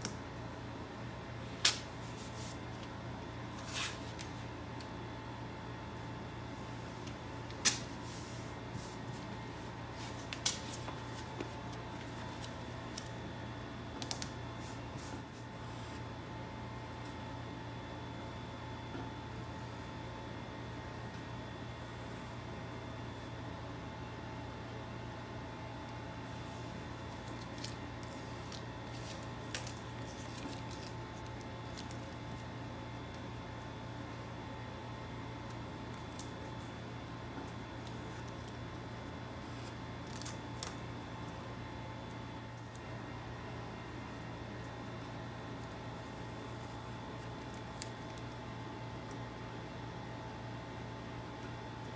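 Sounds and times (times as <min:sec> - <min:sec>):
steady low hum: 0:00.0 - 0:51.9
masking tape crinkling: 0:13.9 - 0:15.5, 0:26.6 - 0:33.3, 0:35.4 - 0:41.0, 0:47.1 - 0:49.2.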